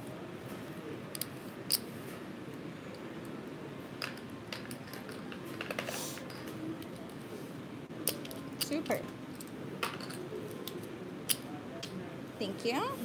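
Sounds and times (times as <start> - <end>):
steady background hum: 0.0 - 13.0
casino chips clacking: 8.0 - 11.4.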